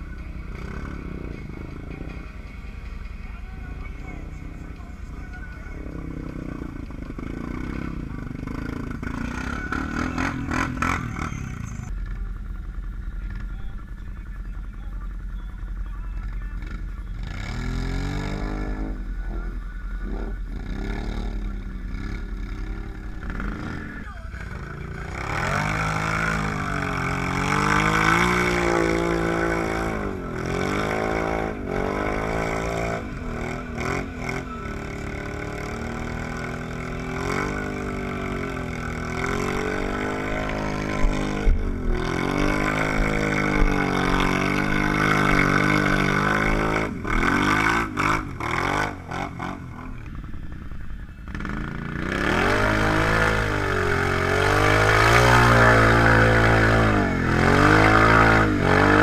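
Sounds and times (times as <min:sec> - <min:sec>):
quad bike engine revving: 0:00.0 - 0:02.3, 0:03.4 - 0:14.0, 0:15.7 - 0:59.0
louder engine revving hard: 0:05.8 - 0:11.9, 0:24.6 - 0:50.0, 0:51.3 - 0:59.0.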